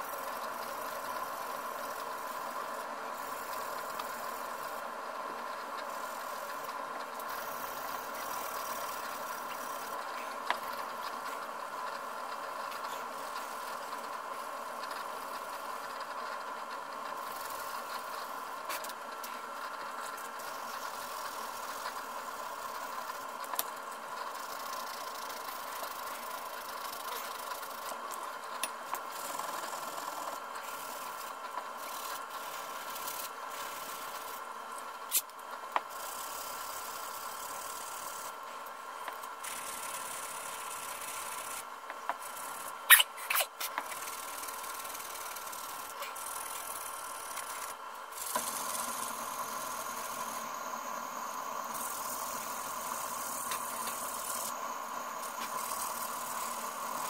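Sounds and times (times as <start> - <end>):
steady hum: 0.0 - 57.0.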